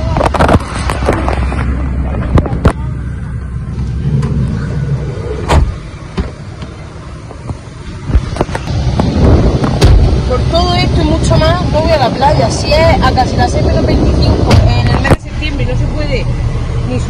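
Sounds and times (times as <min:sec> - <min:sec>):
van engine idling: 0:00.0 - 0:17.0.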